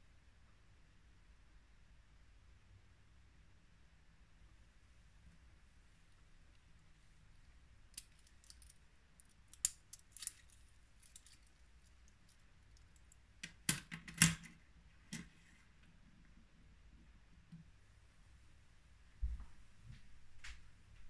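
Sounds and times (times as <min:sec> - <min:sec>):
metal watch bracelet clinking: 0:08.0 - 0:08.8, 0:09.5 - 0:13.2.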